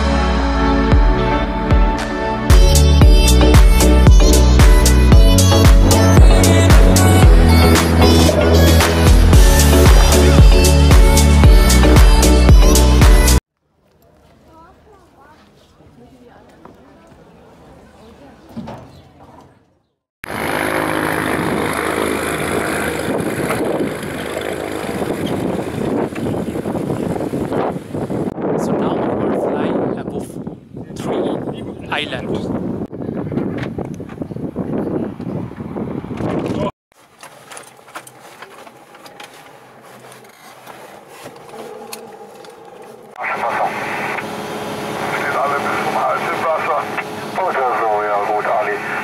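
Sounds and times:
propeller aircraft engine running: 20.2 - 28.4, 38.0 - 49.0.

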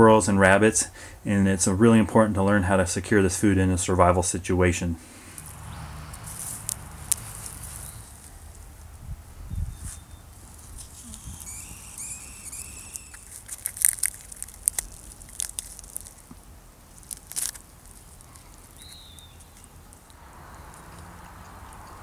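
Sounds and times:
crisp skin crackling and tearing: 6.2 - 8.7, 10.5 - 20.2
bird whistling: 9.5 - 13.4, 18.8 - 19.6.

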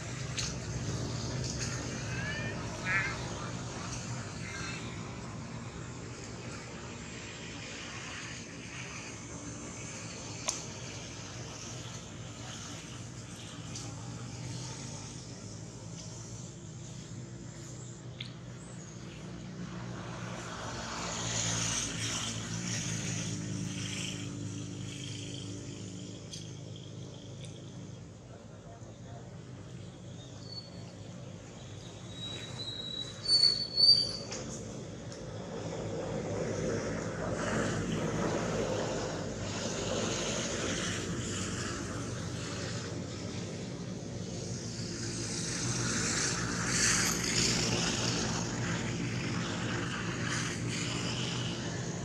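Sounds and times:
low engine drone: 0.0 - 32.2, 34.3 - 52.0.

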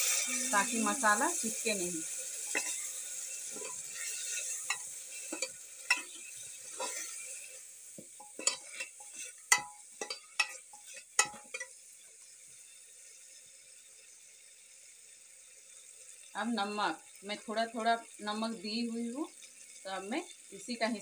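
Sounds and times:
frying sizzle: 0.0 - 21.0
metal spoon scraping a pot: 2.5 - 2.9, 3.5 - 7.5, 8.2 - 11.7.

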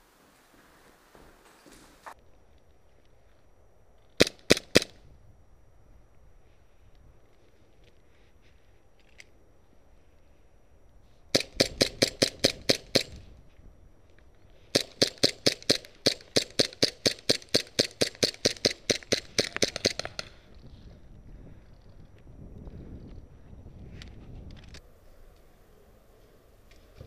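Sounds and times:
airsoft gun firing rapid shots: 4.2 - 5.0, 11.3 - 13.2, 14.7 - 20.3.

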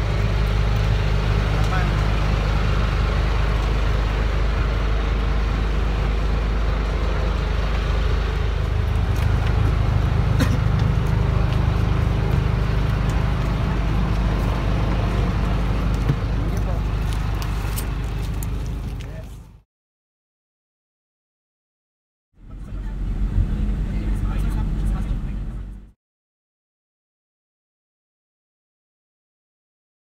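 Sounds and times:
vehicle engine droning: 0.0 - 19.6, 22.4 - 26.0.

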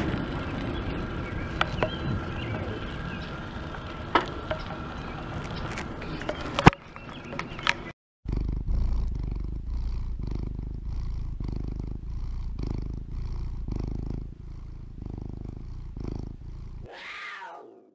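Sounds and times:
riding noise: 0.0 - 17.9
cat purring: 8.3 - 17.0.

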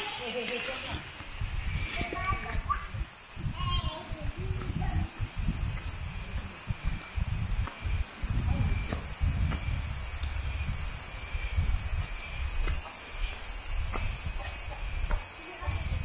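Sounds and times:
insect chorus high hiss: 0.0 - 16.0
low microphone rumble: 1.3 - 12.8.

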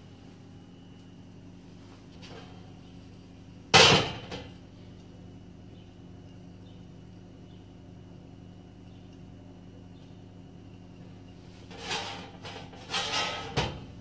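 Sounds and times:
kitchenware clattering: 11.8 - 13.9.

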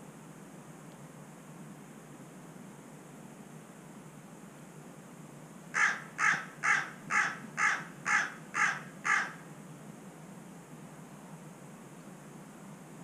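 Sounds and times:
crow cawing: 5.7 - 9.4.

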